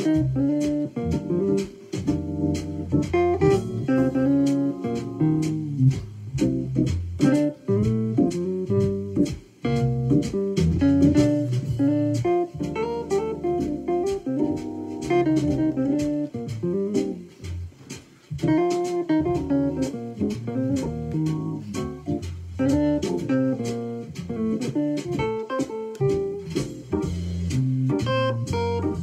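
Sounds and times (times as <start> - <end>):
jazz backing bass and drums: 0.0 - 29.0
electronic wind instrument solo: 11.2 - 16.5, 28.0 - 29.0.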